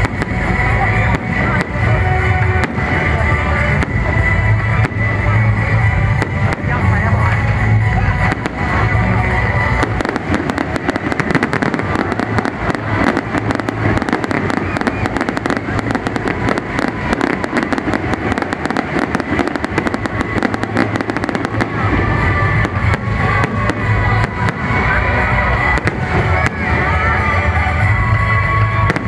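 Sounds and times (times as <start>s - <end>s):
fireworks bangs and crackles: 0.0s - 29.0s.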